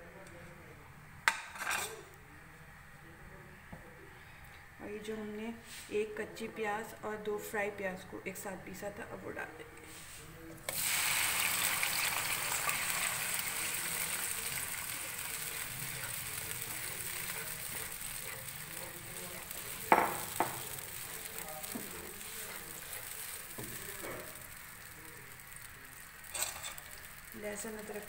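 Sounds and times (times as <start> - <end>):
paste sizzling in hot oil: 10.7 - 28.0
wooden spatula stirring: 12.0 - 25.6.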